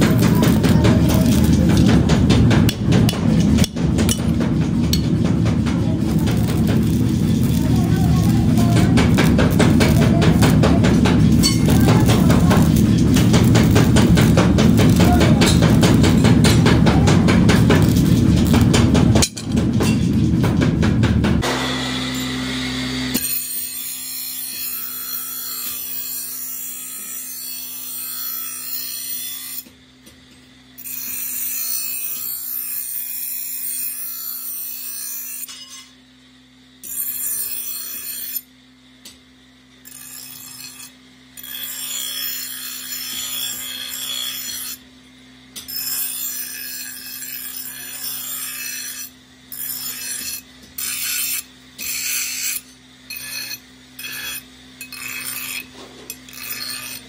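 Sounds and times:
grinding wheel rasping on steel: 0:00.0 - 0:20.8, 0:23.1 - 0:29.7, 0:30.8 - 0:36.0, 0:36.8 - 0:38.5, 0:39.8 - 0:44.9, 0:45.6 - 0:57.0
grinder motor hum: 0:00.0 - 0:57.0.

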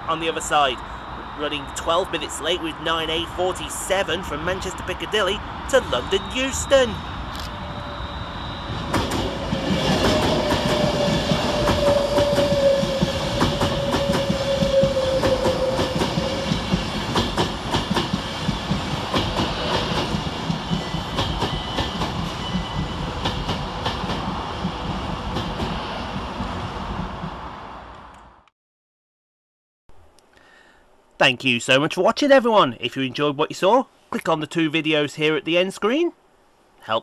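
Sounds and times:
electric train whine: 0:00.0 - 0:28.3
train wheels clicking over rail joints: 0:08.8 - 0:27.5.

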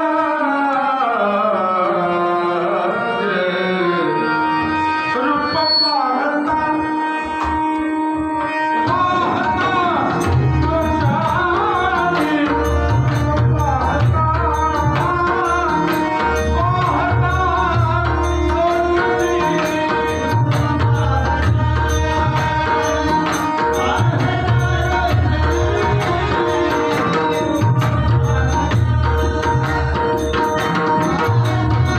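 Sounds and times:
harmonium: 0:00.0 - 0:31.9
man singing: 0:00.0 - 0:31.9
hand drums playing: 0:09.2 - 0:31.9.

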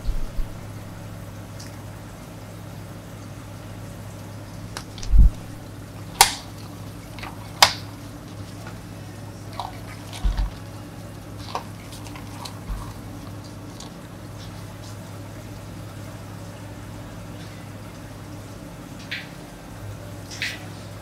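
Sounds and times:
steady low hum: 0:00.0 - 0:21.0
plastic lids snapping on: 0:06.2 - 0:06.5, 0:07.2 - 0:07.9.

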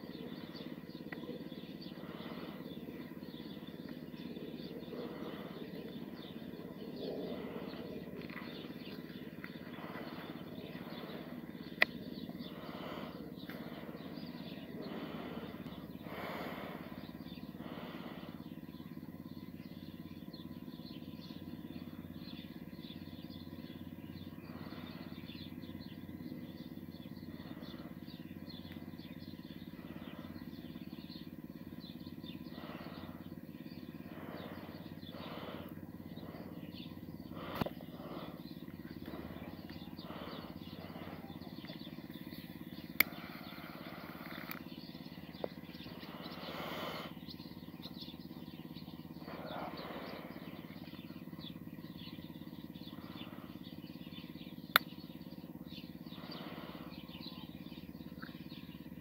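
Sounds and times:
faint chirps: 0:00.0 - 0:59.0
low hum: 0:00.0 - 0:59.0
sharp clicks: 0:37.5 - 0:37.8, 0:42.8 - 0:43.4, 0:44.0 - 0:44.8, 0:54.7 - 0:55.0.

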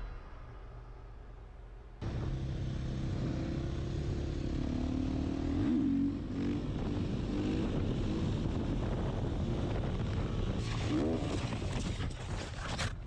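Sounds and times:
motorcycle engine revving: 0:02.0 - 0:11.2
wind noise on microphone: 0:06.4 - 0:13.0.

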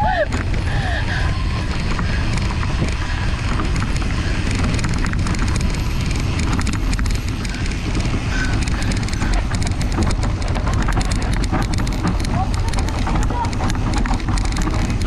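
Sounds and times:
bike rattling and clicking: 0:00.0 - 0:15.0
tyres crackling over dry leaves: 0:00.0 - 0:15.0
wind buffeting microphone: 0:00.0 - 0:15.0.

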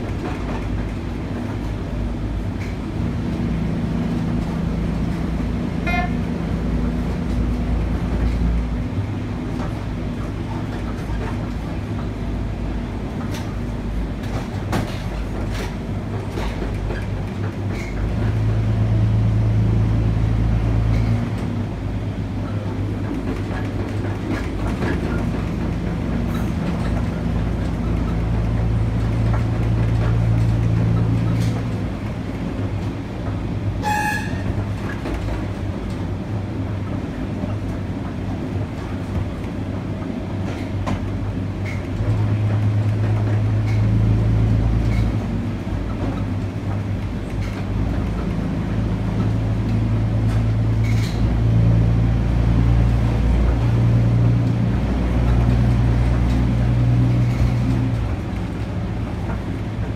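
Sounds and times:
wheels clicking over rail joints: 0:00.0 - 0:19.4, 0:20.1 - 0:59.9
diesel railbus drone: 0:00.0 - 0:59.9.

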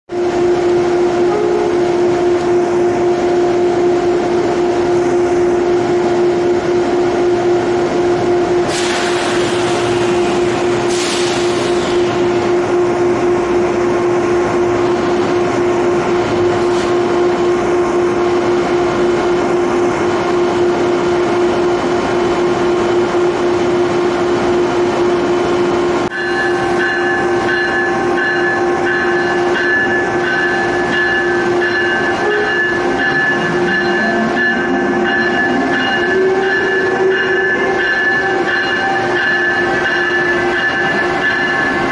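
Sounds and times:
electric locomotive humming: 0:00.1 - 0:41.9
sharp air hisses: 0:08.7 - 0:12.1
high whining tones: 0:24.5 - 0:41.9.

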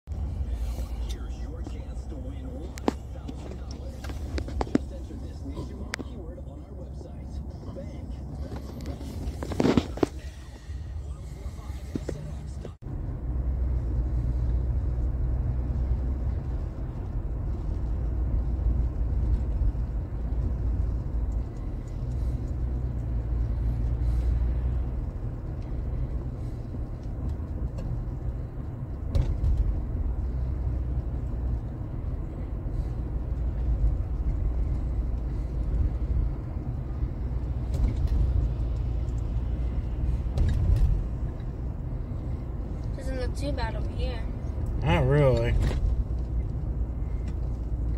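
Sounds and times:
engine and road rumble: 0:00.0 - 0:47.9.

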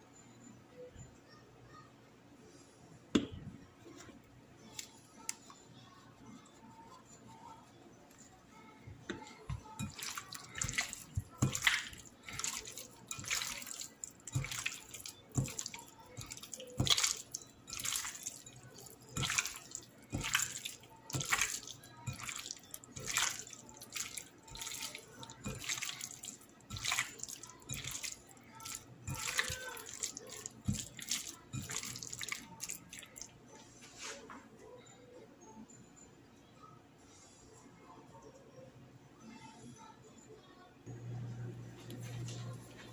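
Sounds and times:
hand squishing raw chicken: 0:09.8 - 0:33.3.

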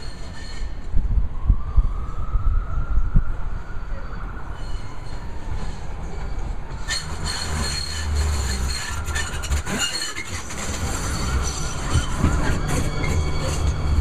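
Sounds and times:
faint high-pitched wheel squeal: 0:00.0 - 0:14.0
light rail train rumble: 0:00.0 - 0:14.0
wheels clicking over rail joints: 0:06.2 - 0:14.0.

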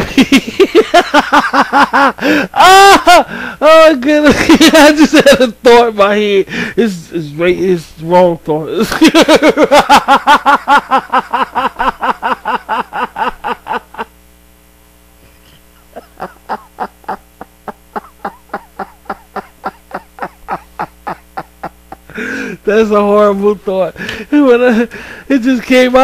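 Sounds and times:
breathy laughter: 0:00.0 - 0:03.5, 0:08.9 - 0:14.1, 0:15.5 - 0:22.6
man laughing hard: 0:00.0 - 0:05.5, 0:08.8 - 0:14.1, 0:15.8 - 0:22.6.

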